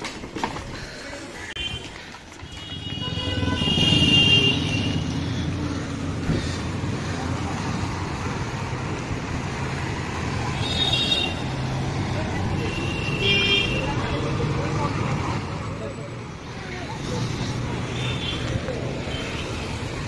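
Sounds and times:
traffic engines rumbling: 0.0s - 20.0s
vehicle horns honking: 1.6s - 5.1s, 10.6s - 11.5s, 12.6s - 14.0s.

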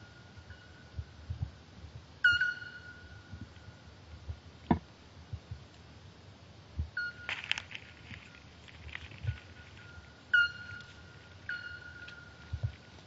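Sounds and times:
bird whistling: 2.2s - 3.1s, 9.8s - 10.9s, 11.5s - 12.4s
blade crackling into dry grass: 7.3s - 10.0s.

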